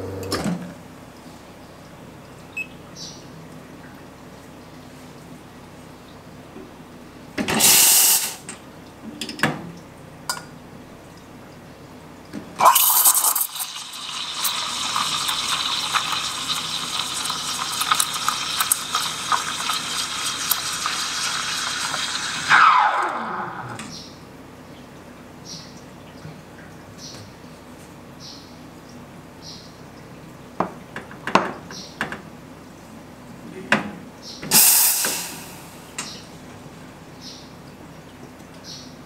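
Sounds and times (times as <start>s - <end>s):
steam blast: 7.6s - 8.4s, 34.5s - 35.8s
steam wand hissing in milk: 7.6s - 8.4s, 34.5s - 35.6s.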